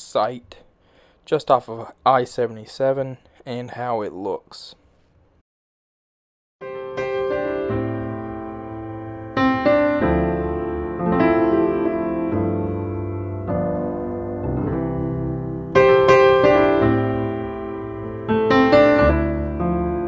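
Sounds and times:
piano chords: 6.6s - 20.0s.

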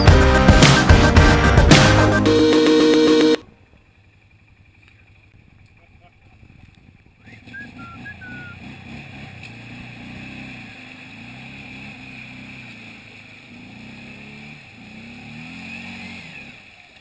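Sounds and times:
quad engine revving: 7.2s - 17.0s.

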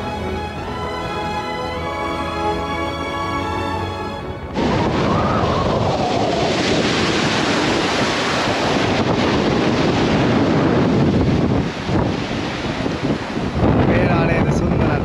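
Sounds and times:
wind buffeting microphone: 4.0s - 15.0s
waves washing around rock: 4.4s - 15.0s.

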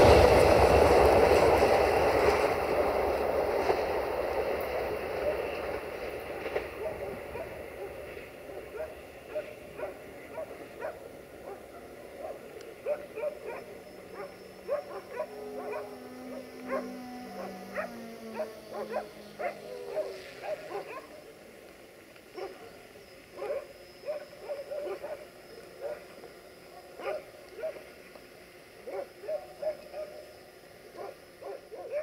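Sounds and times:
dog barking: 6.7s - 21.2s, 22.3s - 22.7s, 23.4s - 26.1s, 26.7s - 27.9s, 28.8s - 30.2s, 30.9s - 32.0s.

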